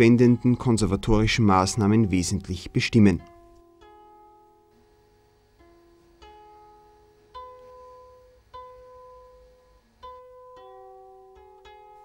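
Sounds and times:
plucked-string notes: 0.0 - 12.0.

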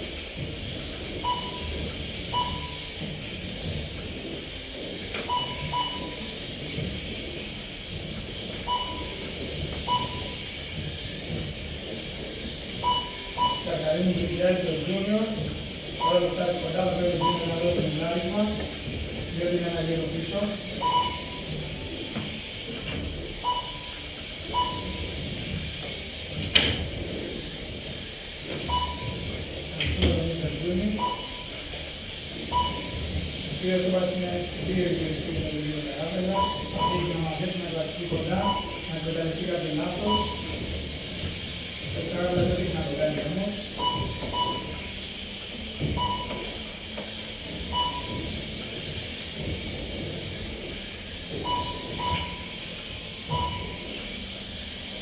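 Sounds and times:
room noise hum: 0.0 - 55.0
steady background noise: 0.0 - 55.0
lap timer short beeps: 1.2 - 3.0, 5.2 - 6.3, 8.6 - 9.2, 9.8 - 10.5, 12.8 - 13.8, 17.2 - 17.7, 20.8 - 21.5, 23.4 - 25.1, 28.7 - 29.2, 30.9 - 31.6, 32.5 - 33.0, 36.3 - 37.2, 38.4 - 38.9, 40.1 - 40.5, 43.8 - 44.9, 46.0 - 46.5, 47.7 - 48.3, 51.4 - 52.6, 53.3 - 53.9.

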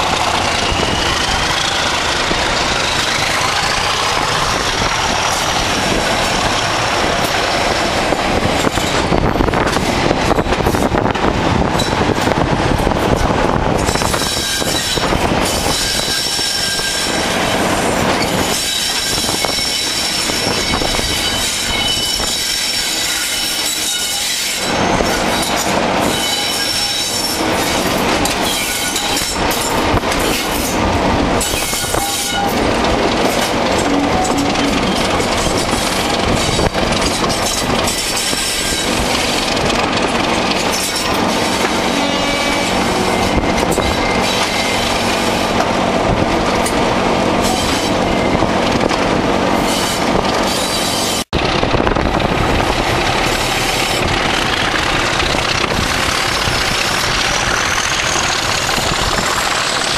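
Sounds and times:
diesel locomotive engines thrashing: 0.0 - 59.9
wheels rattling over track: 0.0 - 59.9
high-pitched wheel squeal: 0.1 - 5.7, 13.8 - 30.8, 31.4 - 39.5, 40.6 - 45.5, 49.6 - 51.3, 55.5 - 59.9.

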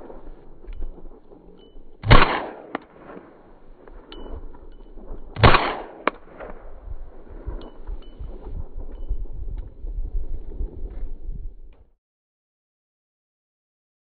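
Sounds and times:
loud gunshots: 2.0 - 3.8, 5.4 - 6.7.

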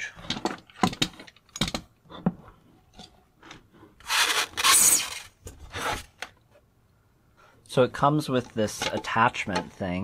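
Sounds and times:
knocks and clicks of handling: 0.2 - 3.7.

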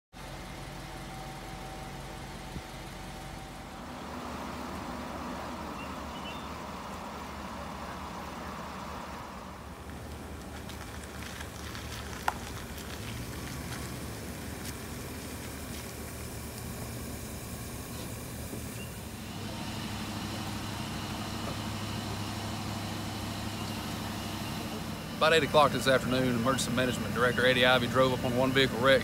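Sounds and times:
idling vehicle engines hum: 0.1 - 29.0.

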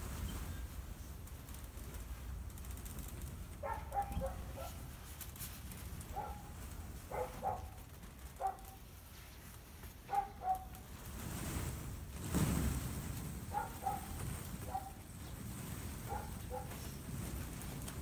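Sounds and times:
dog barking: 3.6 - 4.8, 6.1 - 6.5, 7.1 - 7.8, 8.4 - 8.8, 10.1 - 10.7, 13.5 - 15.0, 16.1 - 16.8.

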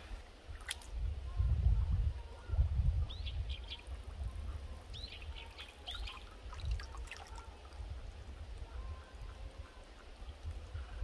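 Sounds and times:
bird chirps: 4.9 - 6.3.

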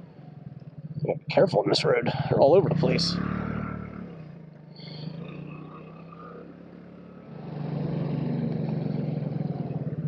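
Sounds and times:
scooter engine running: 2.4 - 10.0.

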